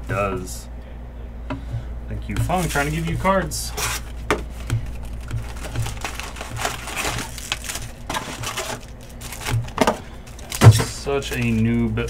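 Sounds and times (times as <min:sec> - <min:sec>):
foil packs crinkling: 0:02.5 - 0:12.0.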